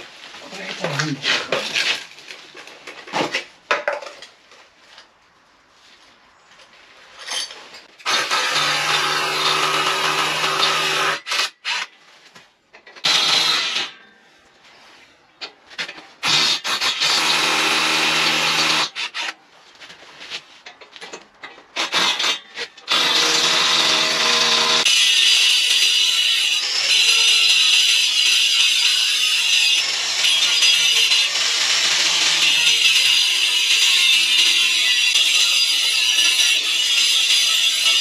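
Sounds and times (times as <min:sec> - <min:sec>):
power tool drilling into concrete: 0:08.0 - 0:11.9, 0:13.0 - 0:13.9, 0:16.2 - 0:19.3, 0:21.8 - 0:25.9, 0:29.8 - 0:33.8.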